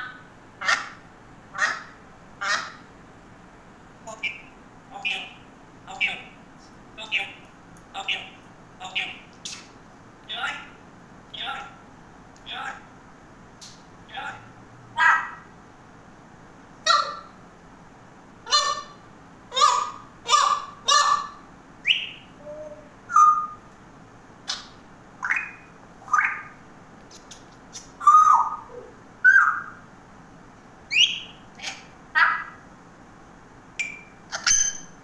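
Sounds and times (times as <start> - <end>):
parrot squawks and whistles: 19.6 - 23.6, 24.5 - 26.5, 28.0 - 29.8, 30.9 - 31.4, 34.3 - 34.9.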